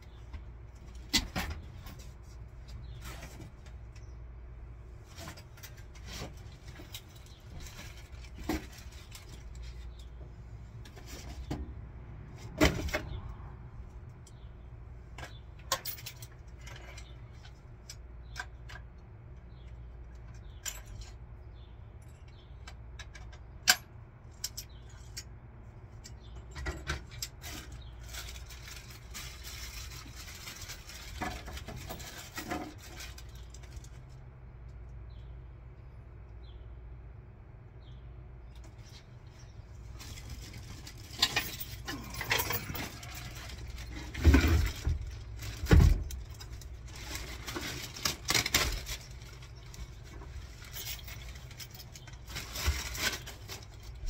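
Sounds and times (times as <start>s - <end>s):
small hand tools clattering: 40.0s - 53.9s.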